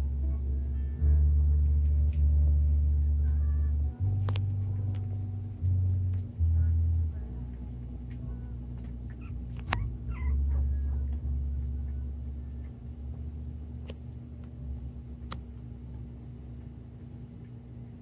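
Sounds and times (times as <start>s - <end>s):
low rumble: 0.0s - 18.0s
puppies squeaking and whimpering: 8.8s - 12.0s.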